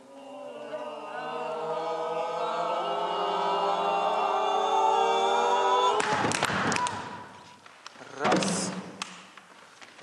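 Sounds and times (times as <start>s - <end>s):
group of voices singing: 0.0s - 7.3s.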